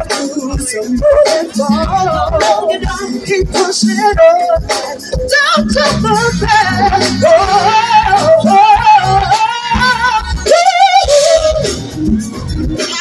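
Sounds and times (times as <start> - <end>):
woman singing with vibrato: 0.0 - 11.8
drums: 0.0 - 13.0
keyboards: 0.0 - 13.0
gospel choir: 5.6 - 10.2.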